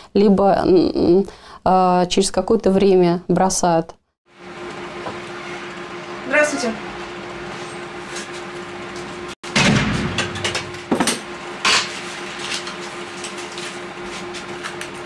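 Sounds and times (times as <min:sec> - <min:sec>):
steady hum: 0:04.3 - 0:15.0.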